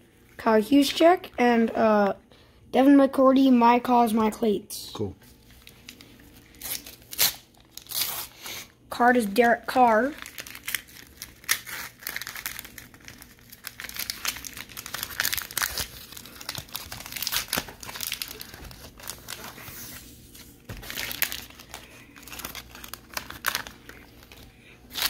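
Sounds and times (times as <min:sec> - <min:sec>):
paper packet crinkling and tearing: 0:05.4 - 0:08.5, 0:09.1 - 0:25.0
stickers and card handled: 0:09.8 - 0:25.0.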